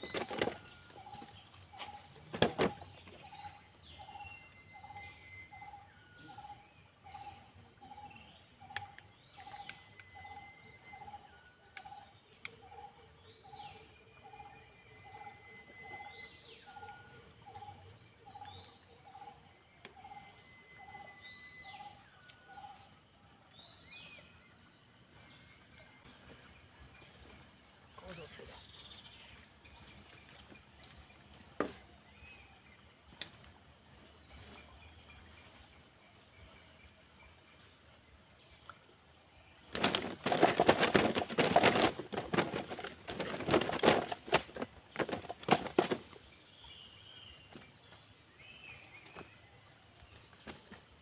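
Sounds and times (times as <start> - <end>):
birds rising and falling calls: 0.0 - 23.0, 39.5 - 51.0.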